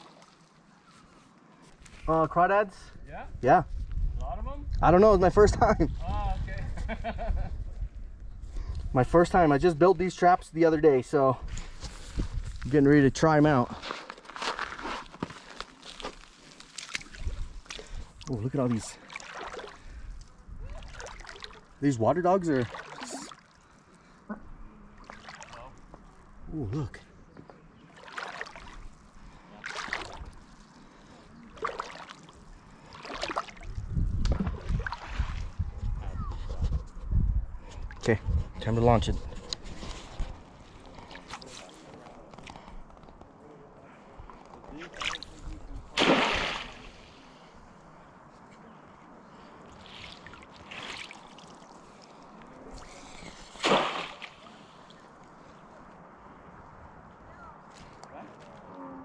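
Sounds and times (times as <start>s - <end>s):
water splashing and lapping: 0.0s - 1.3s, 13.8s - 26.3s, 27.8s - 35.7s, 39.5s - 42.6s, 44.7s - 47.7s, 49.4s - 55.3s.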